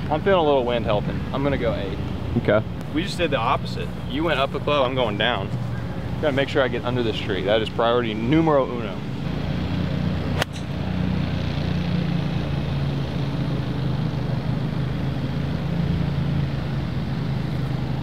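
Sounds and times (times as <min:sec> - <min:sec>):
low motor hum: 0:09.0 - 0:18.0
golf club striking ball: 0:10.3 - 0:10.9.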